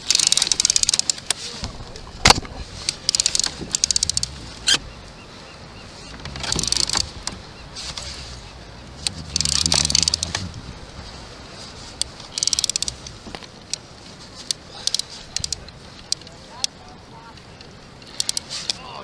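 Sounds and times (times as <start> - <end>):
rattling clicks: 0.0 - 1.4, 2.2 - 4.9, 6.0 - 11.2, 11.9 - 16.7, 18.0 - 18.8.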